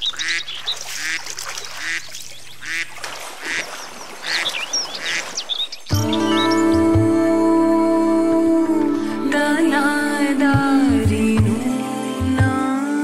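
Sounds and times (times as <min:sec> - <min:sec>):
high duck chirps: 0:00.0 - 0:05.8
ducks quacking: 0:00.0 - 0:06.6.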